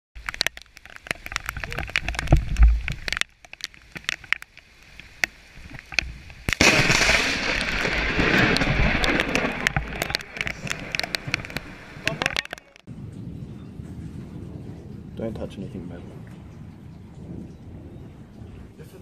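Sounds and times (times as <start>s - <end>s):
lightning crack: 6.4s - 13.3s
loud thunder: 6.6s - 12.2s, 12.9s - 19.0s
scattered clicks and knocks: 8.6s - 12.9s.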